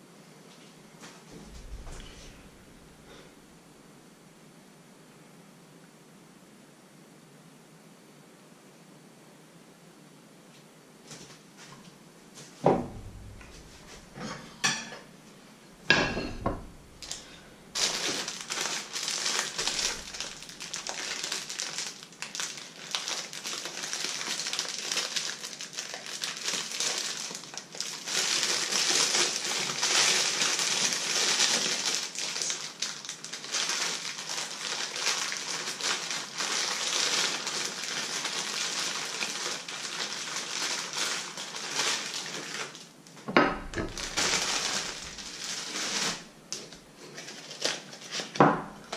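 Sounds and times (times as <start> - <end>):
knocks and clatters: 15.9 - 17.2
frying pan sizzling: 15.9 - 21.2, 43.4 - 46.4.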